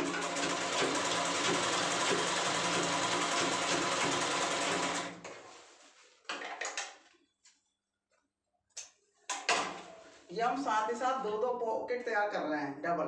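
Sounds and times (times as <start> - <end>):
sewing machine stitching: 0.0 - 5.2.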